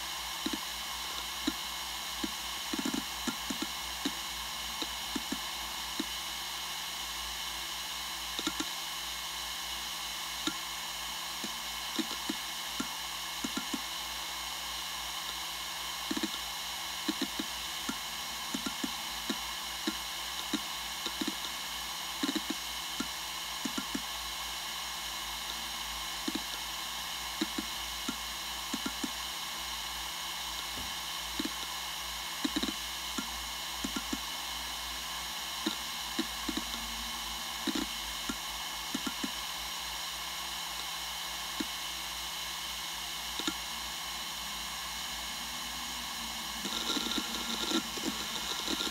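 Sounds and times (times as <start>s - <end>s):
hard drive whine and hiss: 0.0s - 48.9s
hard drive head ticks: 0.4s - 1.6s, 2.2s - 4.2s, 8.4s - 8.7s, 11.4s - 13.9s, 16.1s - 16.4s, 17.0s - 21.6s, 22.2s - 24.1s, 27.4s - 29.2s, 32.4s - 34.3s, 35.6s - 36.8s, 37.6s - 39.4s, 43.4s - 43.6s, 46.6s - 48.9s.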